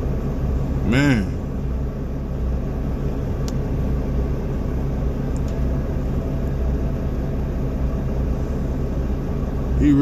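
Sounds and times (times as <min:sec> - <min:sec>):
diesel truck engine idling: 0:00.0 - 0:10.0.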